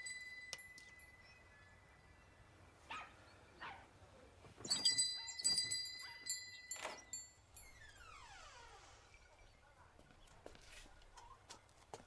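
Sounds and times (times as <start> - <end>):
metallic bell-like ringing: 0.0 - 2.1, 4.7 - 8.3.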